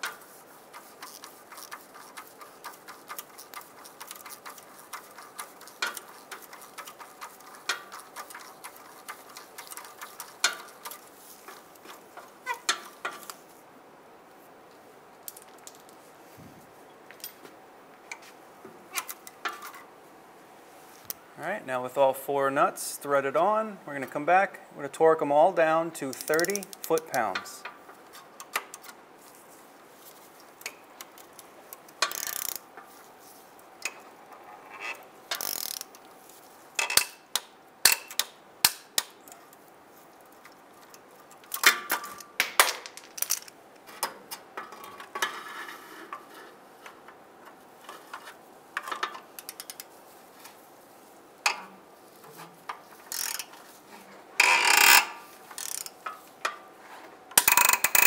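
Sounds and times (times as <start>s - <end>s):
torque wrench ratcheting: 32.0s - 32.6s, 35.3s - 36.0s, 53.1s - 53.5s, 54.4s - 56.0s, 57.4s - 58.0s.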